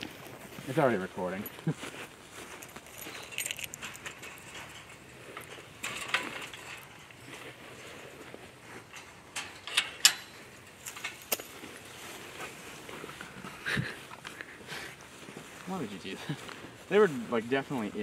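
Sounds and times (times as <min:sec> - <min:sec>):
chain-link gate latch clanking: 0:02.8 - 0:07.2, 0:08.9 - 0:11.5.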